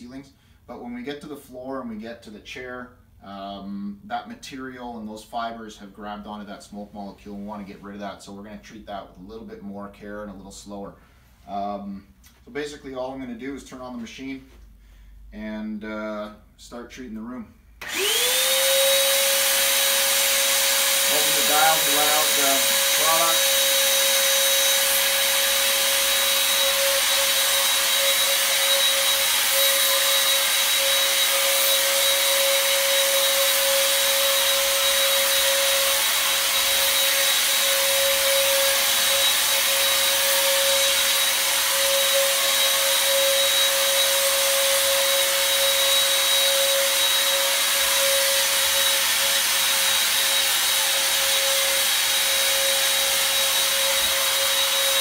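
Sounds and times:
mist sprayer motor whining: 17.8s - 55.0s.

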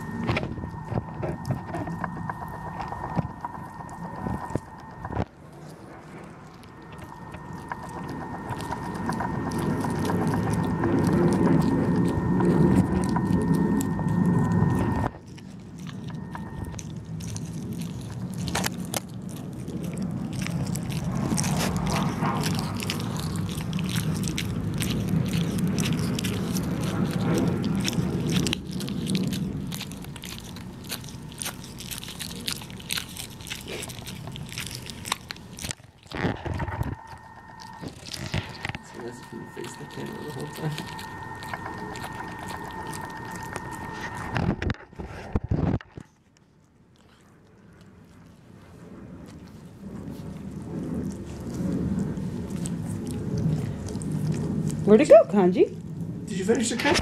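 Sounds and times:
high-toned hum: 0.0s - 45.8s
puppy chewing and gnawing: 0.0s - 57.0s.

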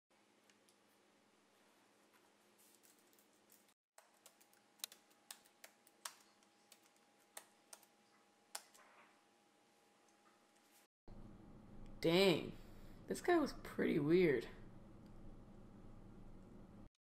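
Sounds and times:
faint room hum: 0.1s - 16.9s
laptop keyboard typing: 4.0s - 8.8s.

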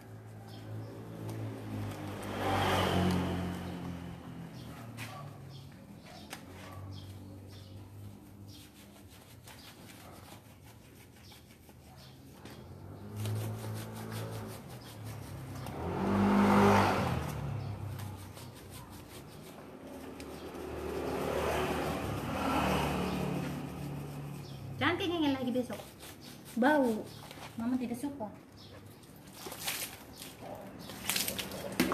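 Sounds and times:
vehicle engine passing by: 0.0s - 8.8s, 12.0s - 26.4s.

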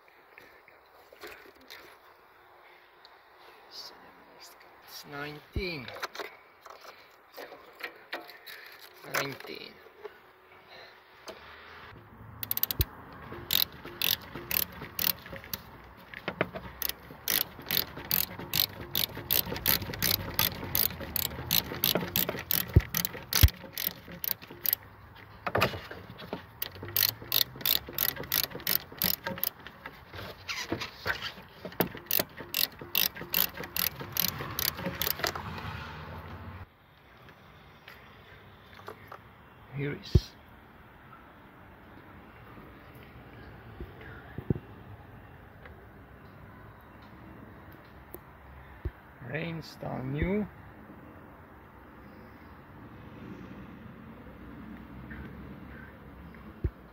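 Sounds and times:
ratchet wrench clicking: 12.4s - 15.7s, 16.3s - 24.8s, 26.6s - 29.9s, 31.3s - 35.5s.

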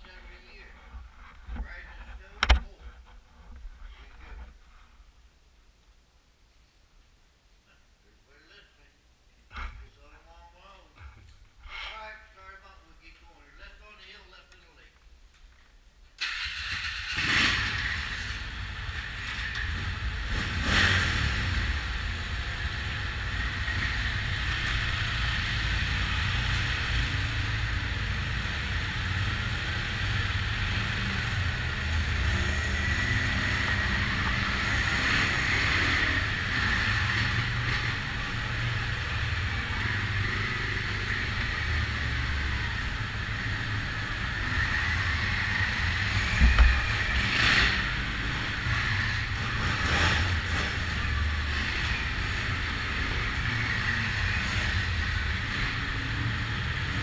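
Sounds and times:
atv engines running: 16.2s - 57.0s.

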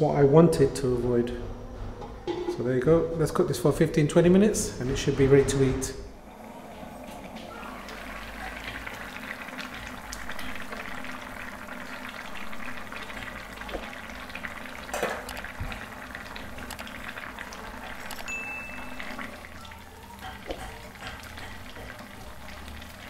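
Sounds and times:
thick sauce boiling in a pot: 6.2s - 23.0s.

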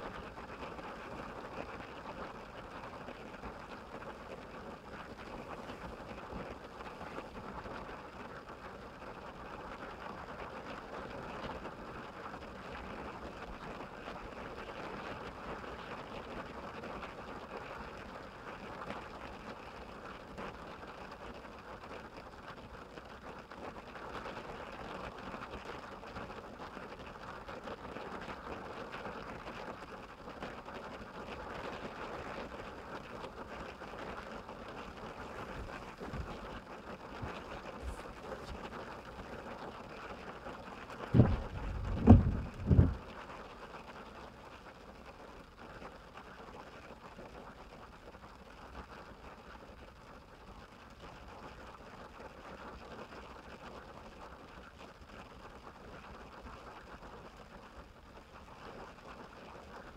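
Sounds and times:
rain on a car roof: 31.0s - 46.0s.

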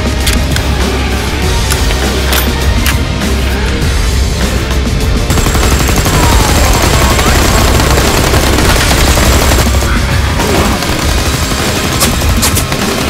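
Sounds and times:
machine-gun and rifle fire: 5.3s - 13.0s.

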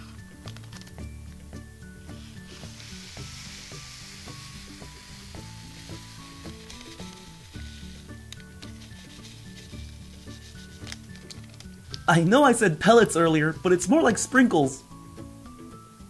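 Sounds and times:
background music: 0.0s - 16.0s
candy granules pouring into bag: 2.0s - 11.4s.

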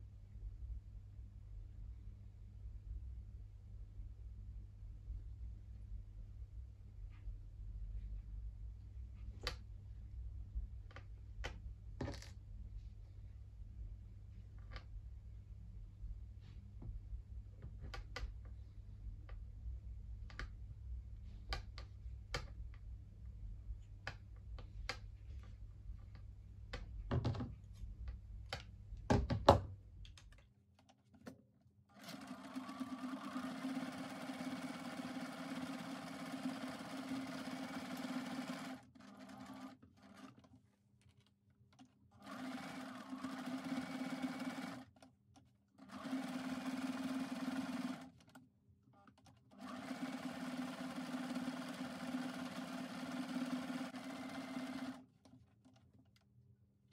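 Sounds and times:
electric sewing machine stitching: 31.9s - 40.4s, 42.2s - 44.9s, 45.8s - 48.4s, 49.6s - 55.1s.

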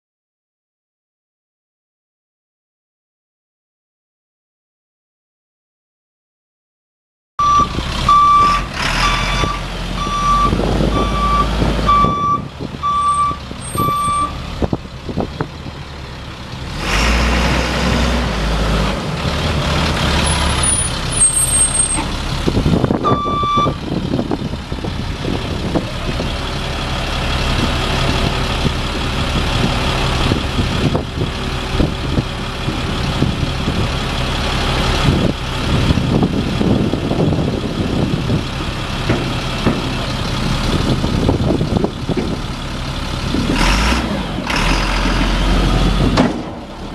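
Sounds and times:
diesel truck engine idling: 7.4s - 17.0s, 18.3s - 46.9s.

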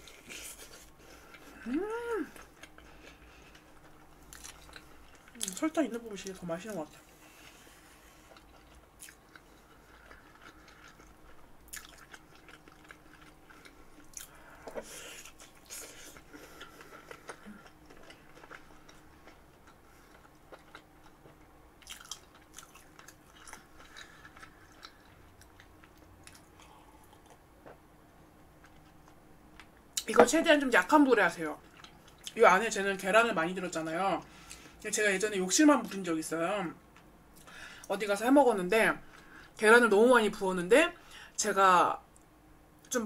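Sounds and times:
mouth chewing sounds: 8.0s - 27.8s.

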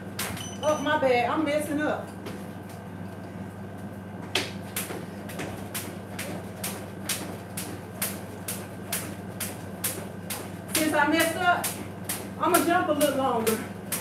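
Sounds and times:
jump rope slapping tile floor: 4.3s - 14.0s.

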